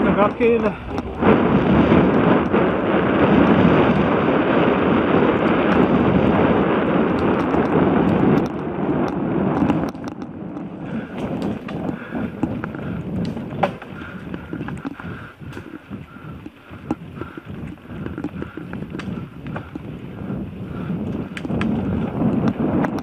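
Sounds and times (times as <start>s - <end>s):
bike tyres rolling on dirt: 0.0s - 23.0s
wind over microphone: 0.0s - 23.0s
bike clicks and knocks: 5.3s - 23.0s.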